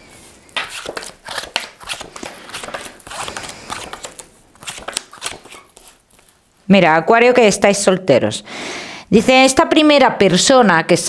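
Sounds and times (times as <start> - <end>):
cards clicking on table: 0.6 - 6.0
cards rustling: 0.6 - 6.4.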